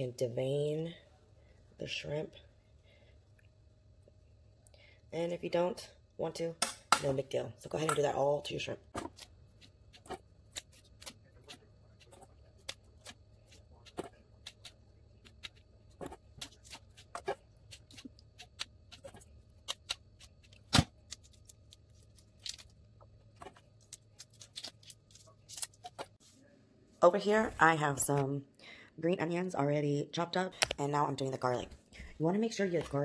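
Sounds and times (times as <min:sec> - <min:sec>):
faint steady hum: 0:00.0 - 0:33.0
shells crackling as peeled: 0:16.6 - 0:22.9, 0:23.6 - 0:26.0.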